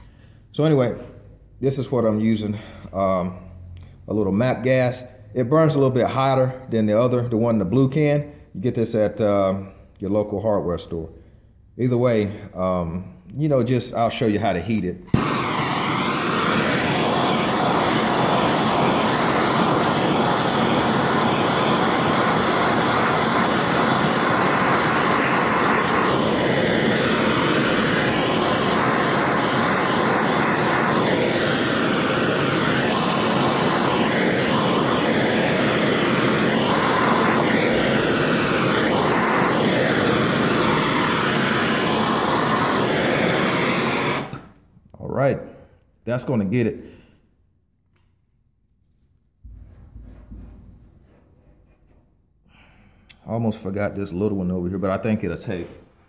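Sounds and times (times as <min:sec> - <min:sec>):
gas torch flame hissing: 0:15.0 - 0:44.6.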